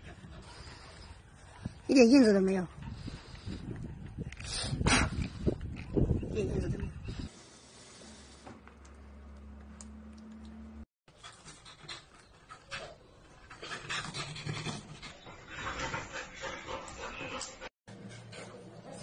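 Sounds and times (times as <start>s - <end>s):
dog panting: 11.1s - 18.6s.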